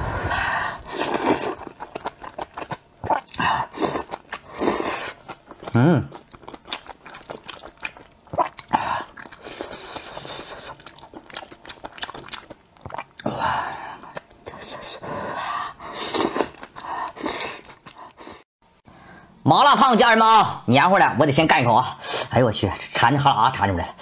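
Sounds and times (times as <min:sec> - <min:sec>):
noodle slurping: 0:00.8 - 0:05.4
chewing and lip smacks: 0:01.5 - 0:03.4, 0:05.2 - 0:13.3.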